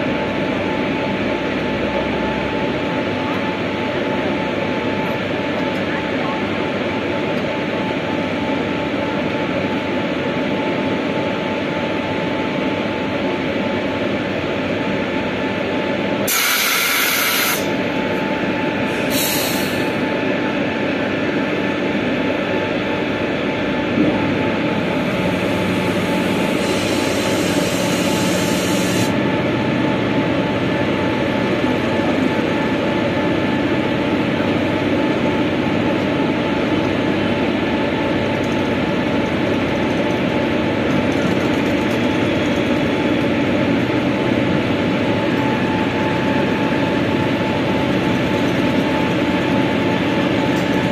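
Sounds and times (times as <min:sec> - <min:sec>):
locomotive machine hum: 0:00.0 - 0:50.9
air hissing: 0:16.3 - 0:17.7, 0:18.9 - 0:20.0, 0:26.2 - 0:29.1.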